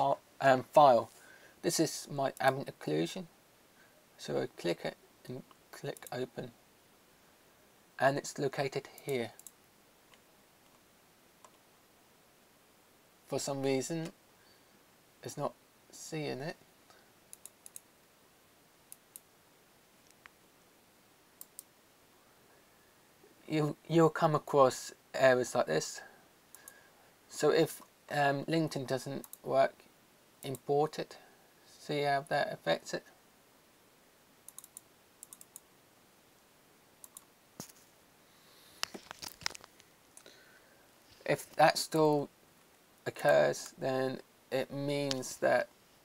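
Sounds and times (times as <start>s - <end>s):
computer mouse clicks: 5.5s - 6.2s, 9.0s - 10.8s, 17.3s - 17.9s, 21.4s - 21.7s, 29.2s - 29.4s, 34.5s - 35.6s, 37.0s - 37.8s.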